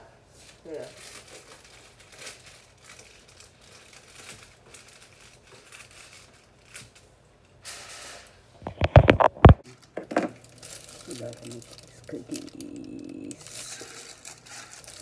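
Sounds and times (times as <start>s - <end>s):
aluminium foil crinkling: 0.4s - 15.0s
camera handling knocks and rustles: 8.6s - 10.4s.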